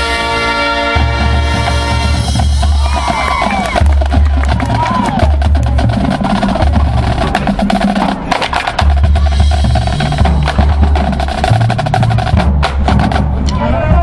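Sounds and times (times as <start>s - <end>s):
low drum notes: 0.8s - 14.0s
snare drum rolls: 1.0s - 13.4s.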